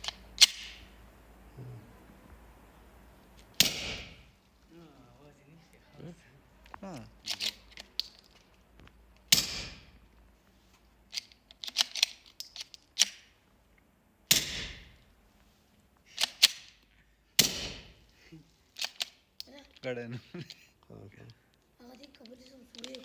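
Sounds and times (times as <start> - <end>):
suppressed pistol shots: 3.6 - 4.2, 9.3 - 9.8, 14.3 - 14.9, 17.4 - 17.9.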